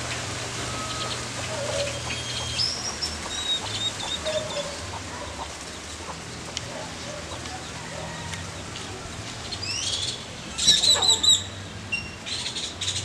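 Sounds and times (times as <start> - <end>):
songbird whistling: 0.7 - 4.8.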